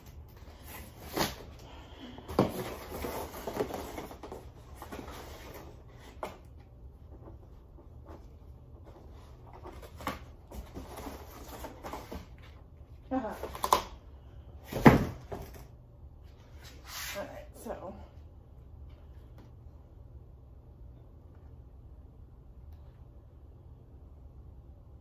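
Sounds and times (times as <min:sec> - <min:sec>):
cardboard rustling and scraping: 0:02.2 - 0:12.6.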